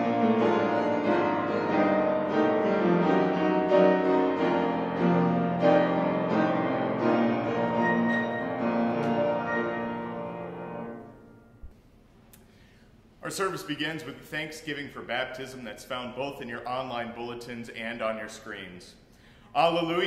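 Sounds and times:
piano music: 0.0s - 11.8s.

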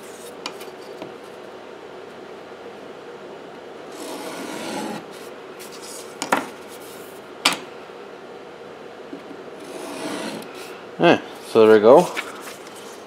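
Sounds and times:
knife blade scraping board edge: 3.9s - 5.1s, 9.6s - 10.6s.

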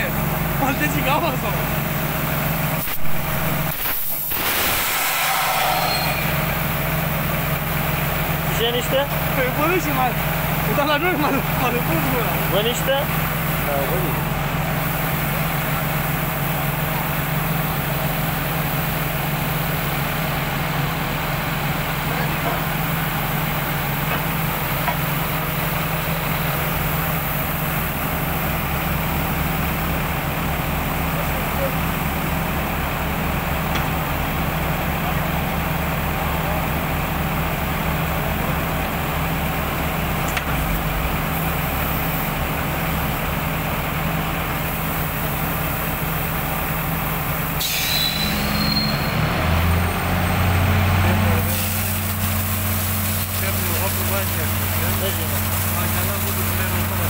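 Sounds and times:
drilling rig engine humming: 0.0s - 57.0s
high metallic squeal: 4.6s - 6.8s, 47.6s - 49.2s.

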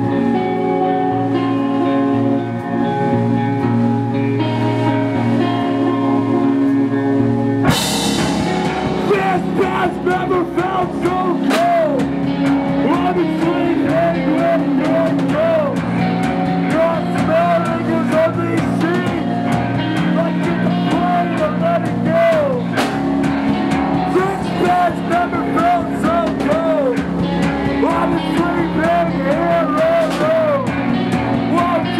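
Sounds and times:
guitar chord ringing: 0.0s - 21.8s
rock band playing: 0.0s - 31.9s
drums crashing: 7.6s - 31.9s.

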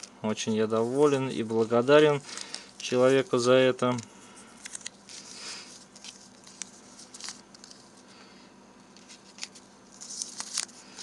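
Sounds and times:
paper rustling and ticks: 9.0s - 11.0s.

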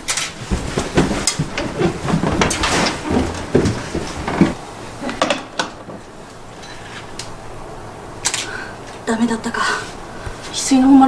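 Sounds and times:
footsteps on wooden floor: 0.3s - 6.0s.

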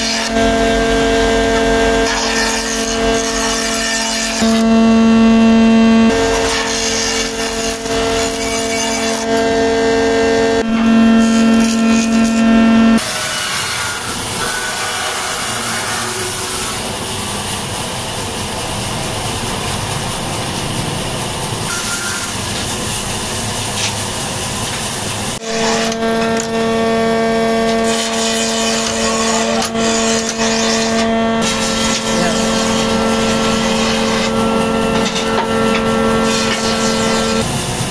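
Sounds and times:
lathe scraping wood: 0.0s - 4.7s, 6.1s - 16.9s, 25.4s - 37.5s
cutter motor whining: 0.0s - 16.8s, 25.4s - 37.5s.

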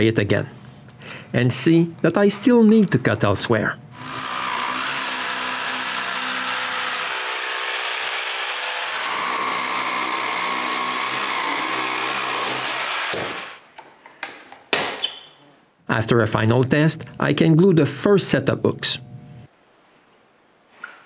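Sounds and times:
jigsaw cutting plywood: 4.0s - 13.6s.

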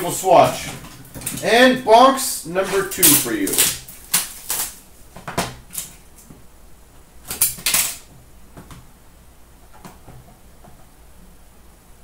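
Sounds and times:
packaging rustling and scraping: 2.5s - 6.3s.

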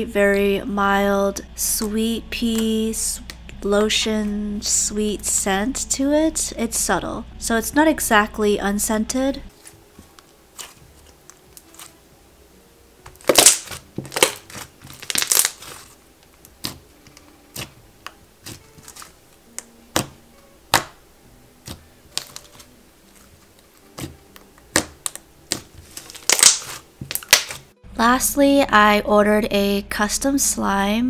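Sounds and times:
crackling pops: 13.0s - 16.9s, 23.8s - 27.7s.

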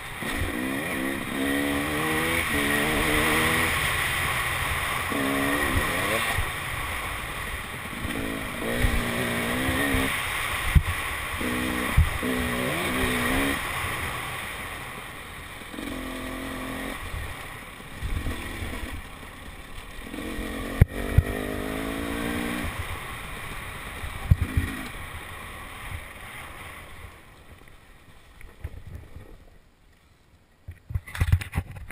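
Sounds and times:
dirt bike engine revving: 0.0s - 25.1s.

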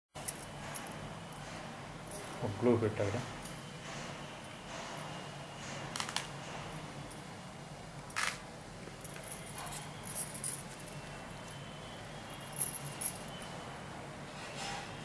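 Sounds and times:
bangles jingling: 9.0s - 13.5s.

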